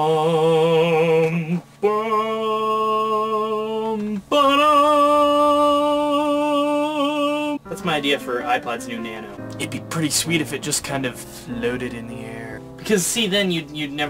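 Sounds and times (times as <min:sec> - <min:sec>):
man singing long held notes: 0:00.0 - 0:07.8.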